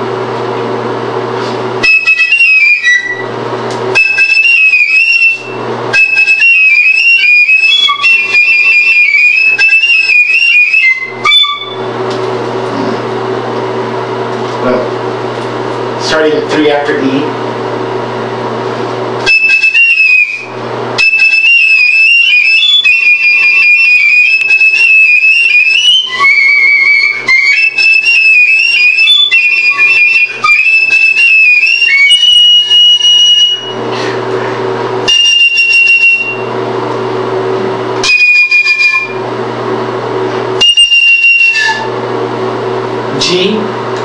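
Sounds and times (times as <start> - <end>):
piccolo playing high notes: 1.8 - 3.3, 3.9 - 12.0, 19.2 - 33.8, 35.0 - 36.5, 38.0 - 39.2, 40.6 - 42.0.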